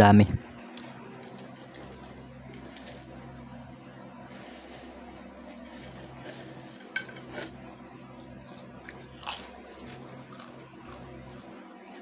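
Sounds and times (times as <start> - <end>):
potato crisps crunching: 8.5 - 12.0.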